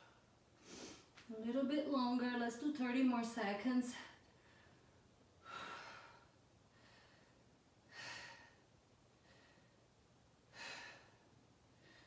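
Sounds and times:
woman breathing heavily: 0.0s - 1.2s, 4.0s - 12.0s.

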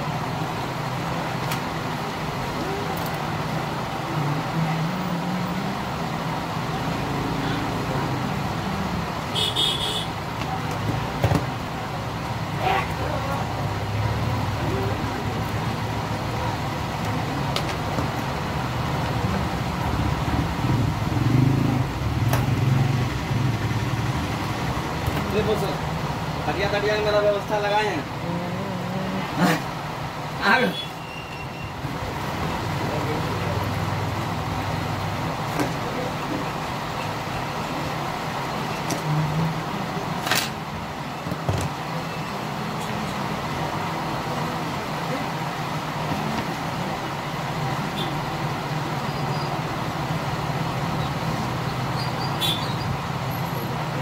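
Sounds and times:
engine rumbling: 0.0s - 30.4s.

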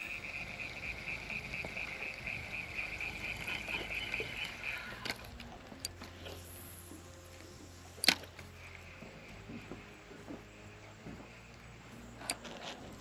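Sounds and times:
animals calling with pulsing trill: 0.0s - 7.2s.

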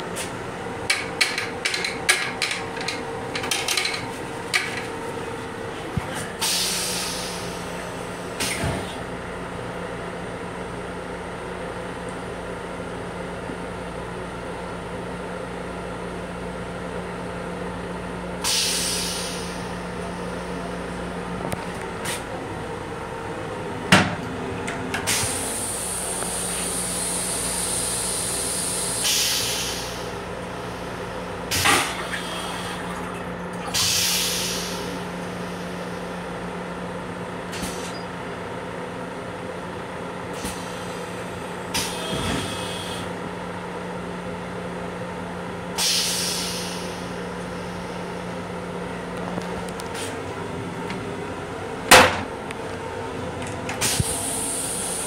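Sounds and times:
train equipment humming: 0.0s - 55.0s
air hissing: 18.4s - 19.6s, 25.1s - 30.1s, 45.8s - 47.1s, 53.8s - 55.0s.

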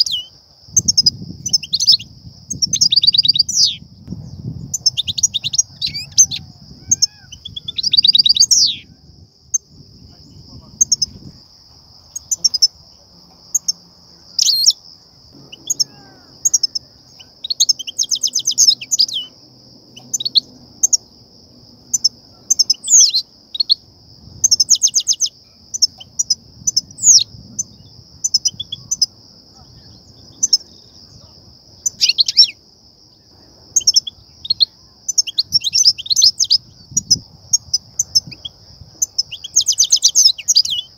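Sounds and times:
finches chirping and twittering: 0.0s - 21.2s, 21.9s - 32.6s, 33.7s - 40.9s
high-pitched drone: 15.3s - 17.5s.

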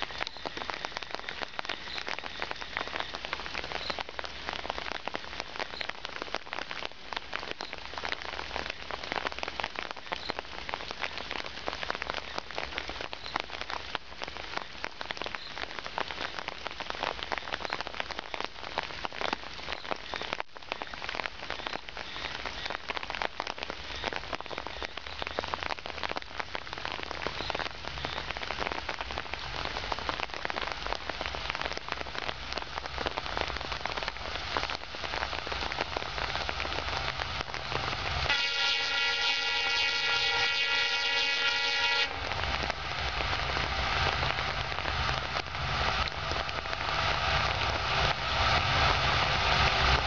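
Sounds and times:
steady rain: 0.0s - 50.0s
diesel locomotive engine hum: 36.1s - 50.0s
locomotive horn blast: 38.3s - 42.4s.

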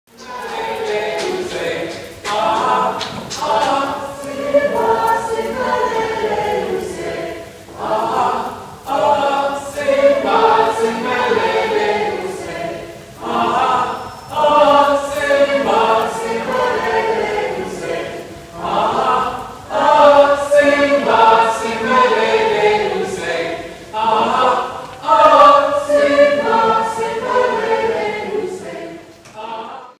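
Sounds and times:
choir singing: 0.1s - 30.0s.

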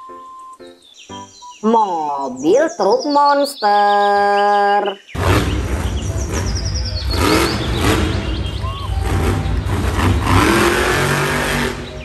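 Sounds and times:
truck engine revving: 5.2s - 12.0s.

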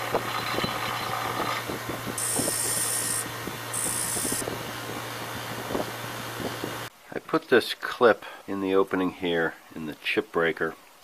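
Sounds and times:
metal grinding against wheel: 0.0s - 4.4s
bench grinder humming: 0.0s - 6.9s.

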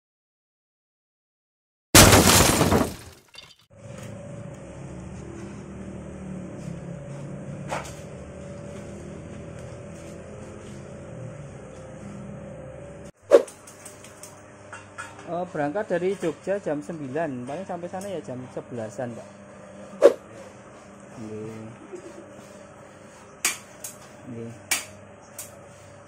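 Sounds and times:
loud short crash: 2.0s - 3.3s
mixer motor humming and whining: 3.8s - 13.1s, 15.4s - 26.0s.

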